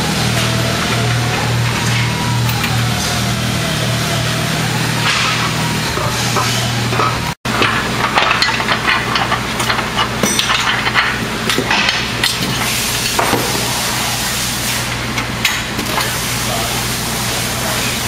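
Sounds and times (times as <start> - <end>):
metal parts clinking: 6.9 - 13.2.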